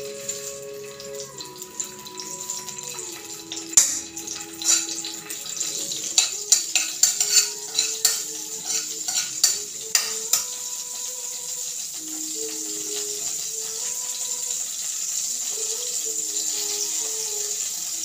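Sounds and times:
butter sizzling: 0:00.0 - 0:18.0
spoon clinking and scraping pan: 0:02.2 - 0:10.7.

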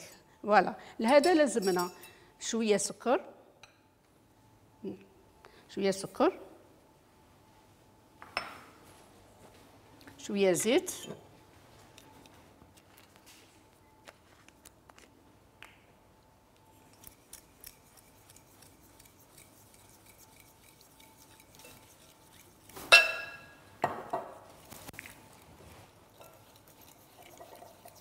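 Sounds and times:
ringing glass clink: 0:22.9 - 0:23.6.

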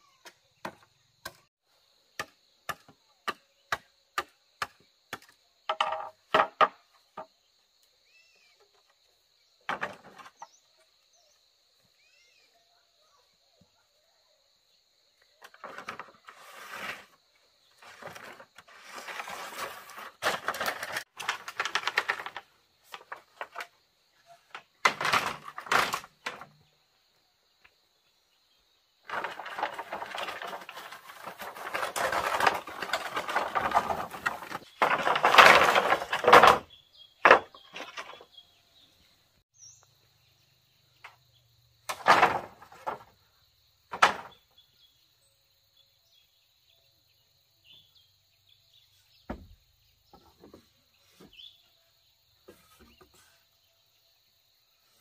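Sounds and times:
rustling and crackling: 0:15.4 - 0:26.6, 0:29.0 - 0:38.3.

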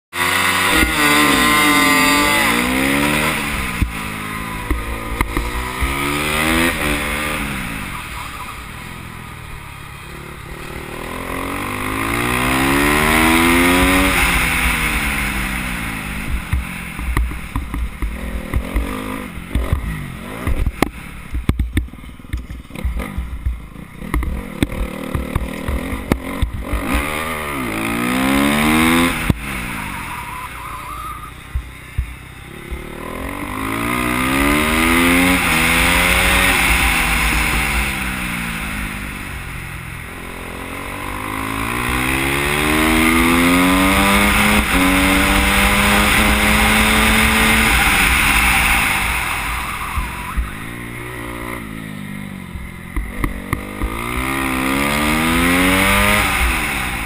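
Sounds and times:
motorcycle engine revving: 0:00.0 - 0:57.0
engine clicks and pops: 0:19.5 - 0:26.9.

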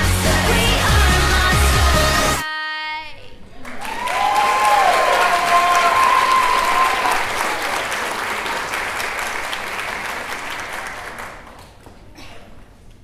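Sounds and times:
audience applause: 0:03.6 - 0:11.8.

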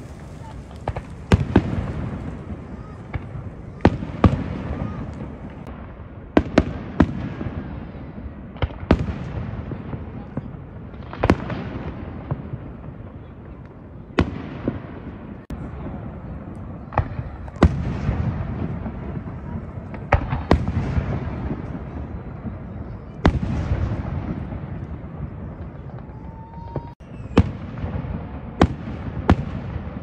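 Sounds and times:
firework whistling: 0:00.0 - 0:05.7, 0:16.8 - 0:29.4.

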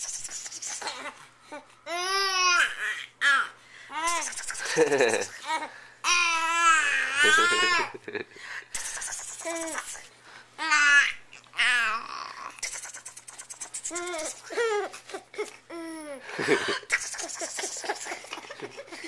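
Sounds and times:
infant laughing: 0:00.6 - 0:01.6, 0:04.0 - 0:08.0, 0:13.9 - 0:19.0
infant squealing: 0:06.1 - 0:07.9, 0:10.6 - 0:12.6, 0:13.9 - 0:15.5.

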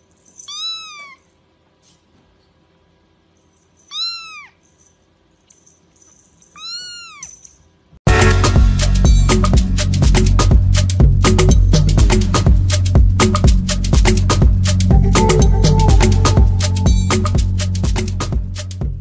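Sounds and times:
cat meowing: 0:00.5 - 0:01.3, 0:03.9 - 0:04.6, 0:06.6 - 0:07.4
loud music: 0:08.1 - 0:19.0.

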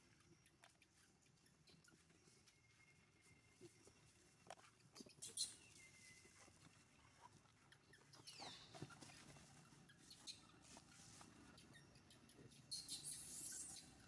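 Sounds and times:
high-pitched animal squeaks: 0:05.0 - 0:05.9, 0:07.7 - 0:09.2, 0:11.5 - 0:14.0.

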